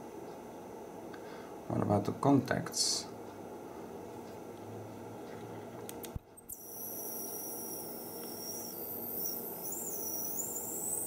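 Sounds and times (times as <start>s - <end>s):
click: 5.9s - 6.5s
high-pitched electronic whine: 6.5s - 11.0s.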